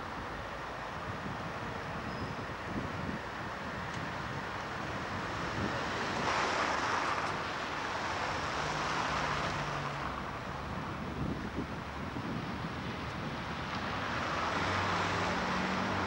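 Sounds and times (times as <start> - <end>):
passing cars: 0.0 - 16.0
wind on microphone: 0.9 - 7.6, 10.3 - 16.0.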